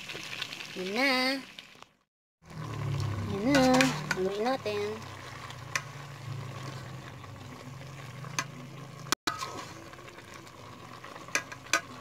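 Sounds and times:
meat sizzling: 0.0s - 12.0s
metal spoon stirring in pot: 2.9s - 12.0s.

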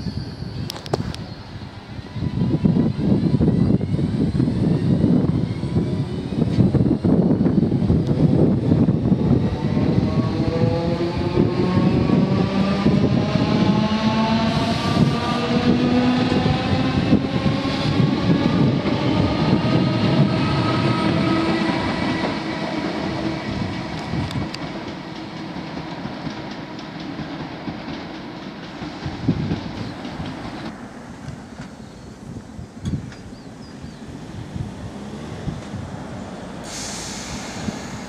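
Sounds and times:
wind: 0.0s - 38.0s.

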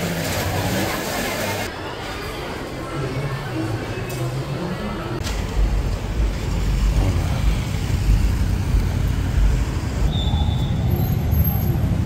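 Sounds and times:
cars and motorbikes driving past: 5.4s - 12.0s.

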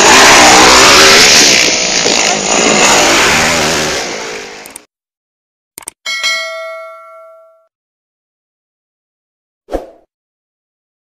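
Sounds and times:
dirt bike engines revving: 0.0s - 4.8s.

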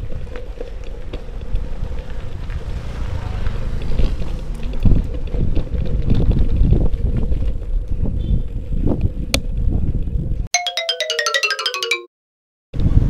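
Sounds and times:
bicycle tyres rumbling on bricks: 0.0s - 10.4s
wind buffeting microphone: 3.6s - 10.4s.

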